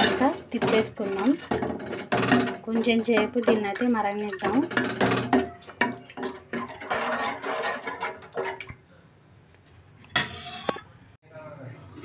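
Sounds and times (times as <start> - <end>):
spoon scraping metal pot: 0.0 - 8.8
spoon clatter: 2.4 - 8.8.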